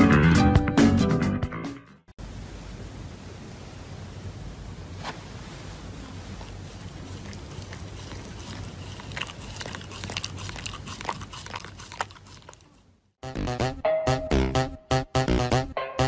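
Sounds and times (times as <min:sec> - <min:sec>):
background hiss: 0:02.2 - 0:09.2
dog chewing paper tissue: 0:05.6 - 0:12.9.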